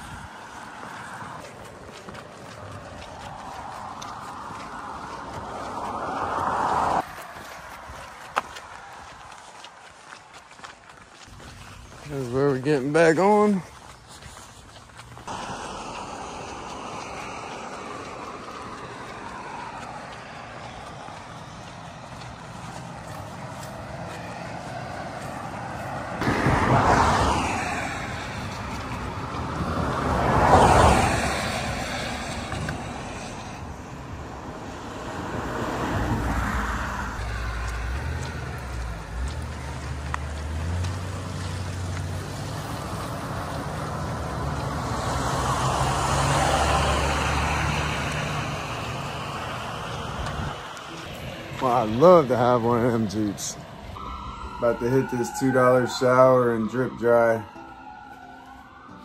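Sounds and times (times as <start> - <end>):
cars passing by: 0.0 - 59.0
low engine hum: 15.0 - 56.0.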